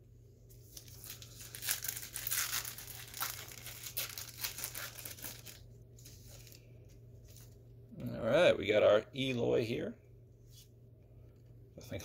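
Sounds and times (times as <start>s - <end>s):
foil wrapper tearing and crinkling: 0.6s - 6.6s.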